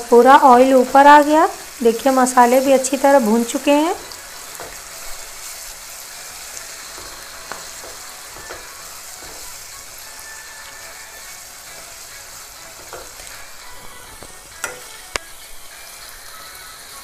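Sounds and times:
masala sizzling in oil: 0.0 - 17.0
spatula stirring in pan: 0.5 - 15.7
spatula knocking on pan: 7.0 - 9.6.

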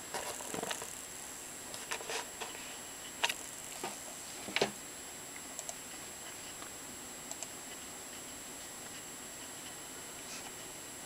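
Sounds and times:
faint steady high whine: 0.0 - 11.0
keyboard and mouse clicks: 5.6 - 5.8, 7.3 - 7.5.

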